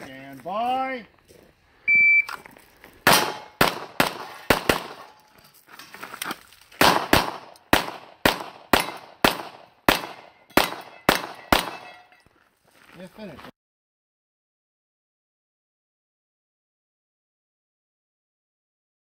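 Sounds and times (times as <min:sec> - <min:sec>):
handgun shots: 0:03.1 - 0:05.2, 0:06.8 - 0:12.0
bullets ringing off steel targets: 0:03.1 - 0:05.3, 0:06.8 - 0:12.2.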